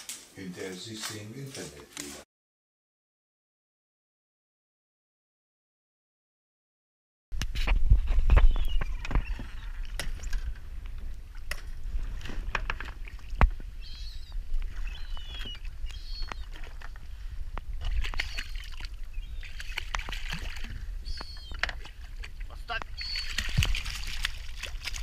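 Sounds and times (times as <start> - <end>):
water sloshing and splashing: 8.3 - 25.0.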